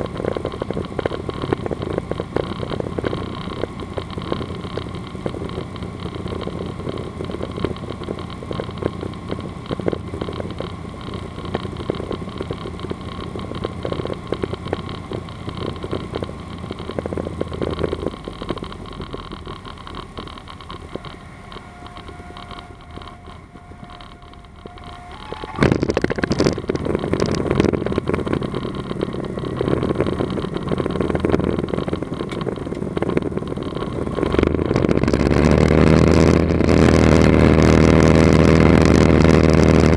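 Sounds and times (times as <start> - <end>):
aircraft engine and propeller: 0.0 - 34.4
wheels rumbling on runway: 0.0 - 39.9
stall warning tone: 9.9 - 34.9.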